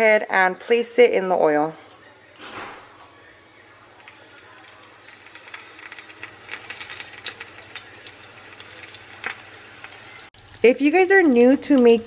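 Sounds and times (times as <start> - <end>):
taco frying in hot oil: 4.0 - 12.0.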